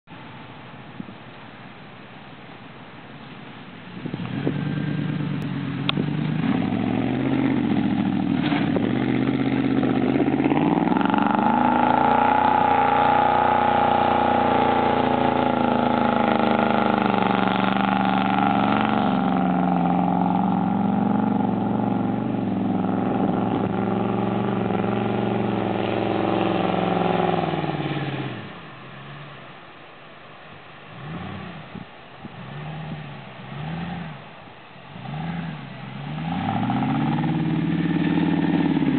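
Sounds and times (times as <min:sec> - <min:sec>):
truck engine revving: 0:04.0 - 0:29.5, 0:30.8 - 0:38.9.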